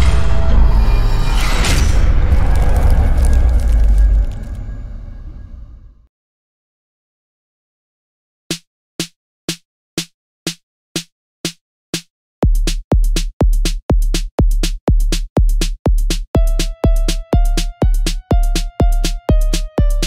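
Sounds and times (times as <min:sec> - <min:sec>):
electronic music with drum machine: 0:12.4 - 0:20.0
heavy kick drum: 0:12.4 - 0:20.0.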